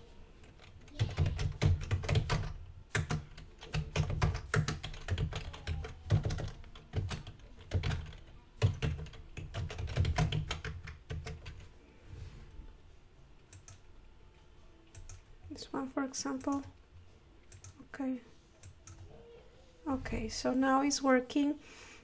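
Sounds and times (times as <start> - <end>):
typing on computer keyboard: 0.4 - 11.7, 13.5 - 13.9, 14.9 - 15.6, 16.3 - 16.8, 17.4 - 17.8, 18.6 - 19.1.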